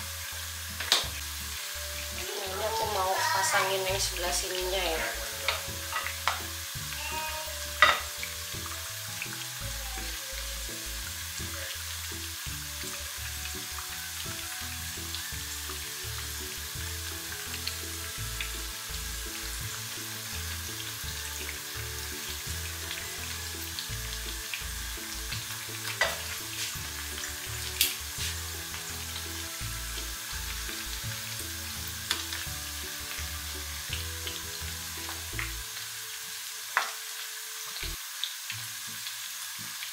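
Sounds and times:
food deep-frying in hot oil: 0:00.0 - 0:39.9
spatula and tongs clicking on pan: 0:00.8 - 0:01.2.

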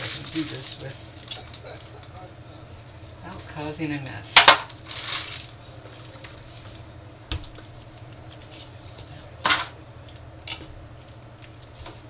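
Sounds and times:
plastic bag rustling: 0:00.0 - 0:02.0, 0:04.4 - 0:06.9
low steady hum: 0:00.0 - 0:12.0.

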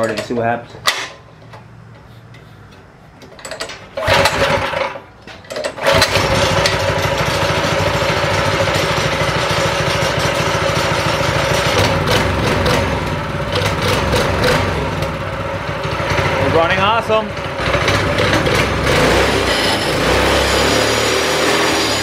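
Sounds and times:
engine pull-start: 0:03.4 - 0:08.5
small engine running: 0:05.8 - 0:16.8, 0:17.6 - 0:22.0.

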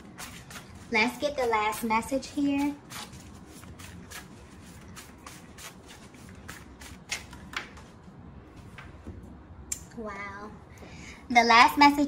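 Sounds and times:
cards being shuffled: 0:02.9 - 0:08.0.

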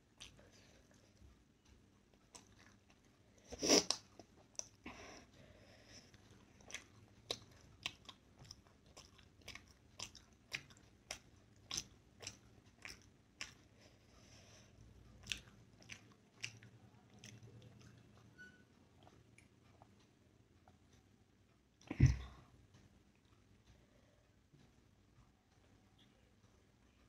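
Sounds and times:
person chewing: 0:02.2 - 0:04.8, 0:06.0 - 0:13.8, 0:15.0 - 0:18.3.

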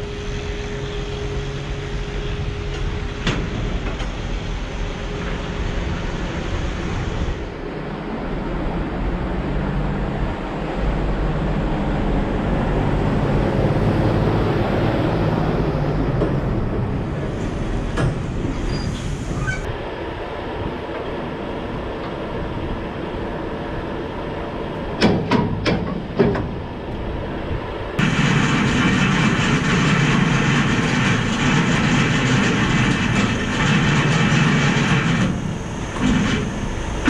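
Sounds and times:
sharp knocks: 0:25.0 - 0:26.6
heavy truck diesel engine running: 0:27.8 - 0:37.0.

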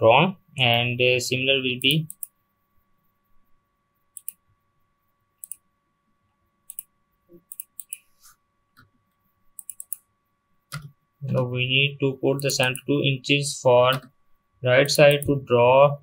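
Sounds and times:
faint steady hum: 0:00.0 - 0:16.0
mouse and keyboard clicks: 0:04.2 - 0:04.4, 0:06.7 - 0:08.1, 0:09.6 - 0:10.0.

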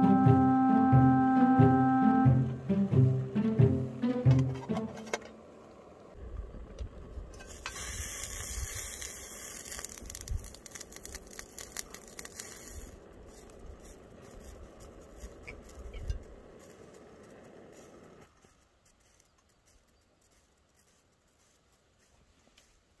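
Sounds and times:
steam hissing from pot: 0:07.3 - 0:18.4.

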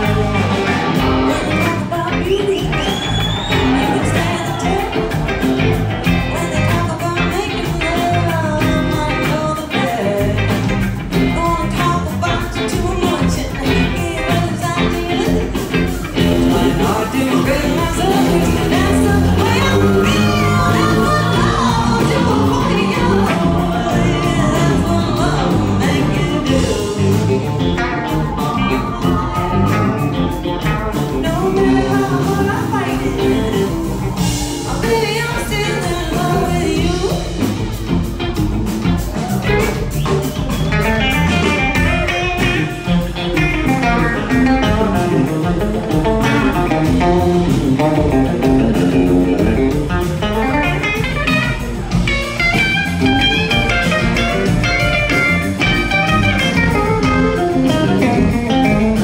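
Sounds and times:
drums: 0:00.0 - 0:59.0
electric guitar: 0:00.0 - 0:59.0
woman singing lead: 0:00.0 - 0:59.0.

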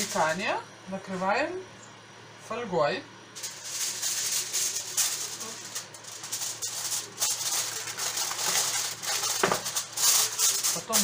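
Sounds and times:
aluminium foil crinkling: 0:00.0 - 0:00.5, 0:03.4 - 0:11.0.

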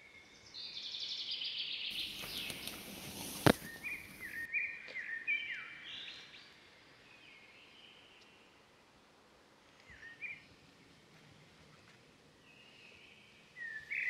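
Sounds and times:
rustle: 0:01.9 - 0:05.1, 0:05.8 - 0:14.0
birds whistling: 0:01.9 - 0:06.2.

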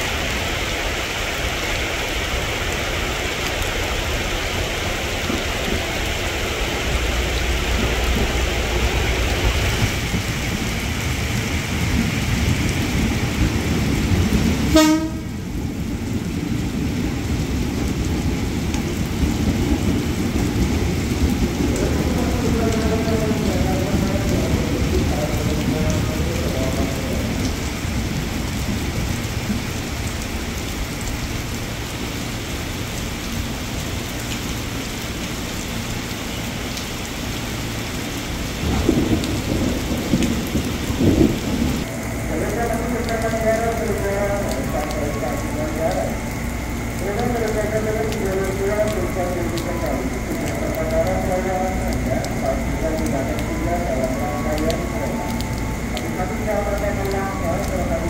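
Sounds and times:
heavy rain on roofs: 0:00.0 - 0:58.0
train horn toot: 0:14.7 - 0:15.5.

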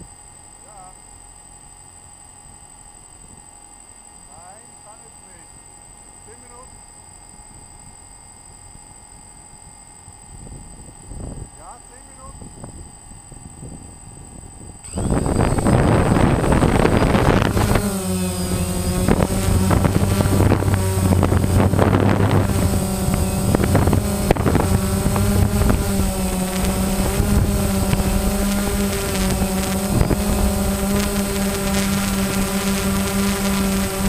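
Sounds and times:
wind buffeting microphone: 0:10.2 - 0:11.6, 0:12.3 - 0:34.0
drone motors buzzing: 0:14.6 - 0:34.0.

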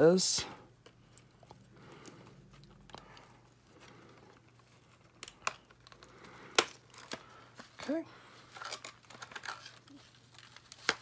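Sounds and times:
plastic packaging crinkling: 0:02.5 - 0:11.0.

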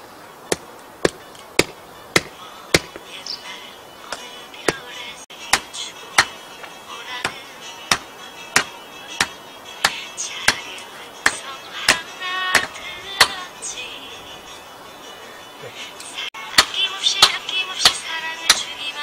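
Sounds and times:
hand tool knocking: 0:08.6 - 0:10.6, 0:12.6 - 0:13.4.

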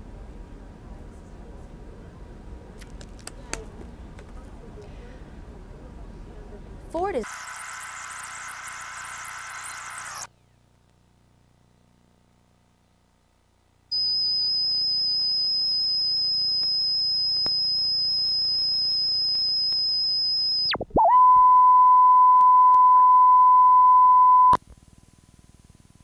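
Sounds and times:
high-pitched test tone: 0:13.9 - 0:24.6
lower reference tone: 0:13.9 - 0:24.6.

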